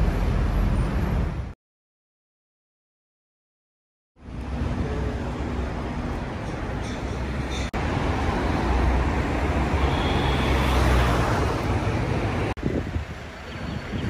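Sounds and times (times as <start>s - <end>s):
car engines and tyres rumbling: 0.0s - 1.6s, 4.2s - 14.0s.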